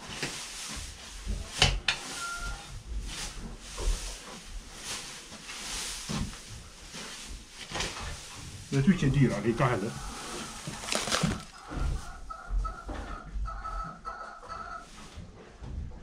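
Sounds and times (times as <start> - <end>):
pitchfork tearing dry hay: 0.0 - 12.1.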